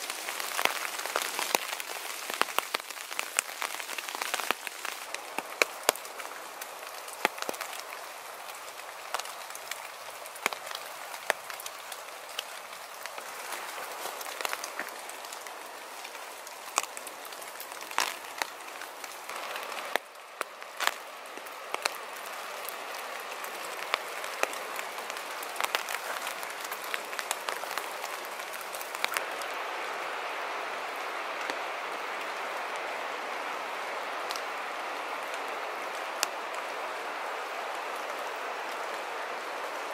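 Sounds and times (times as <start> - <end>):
river rushing: 0.0 - 39.9
water drops ticking on leaves: 0.0 - 39.9.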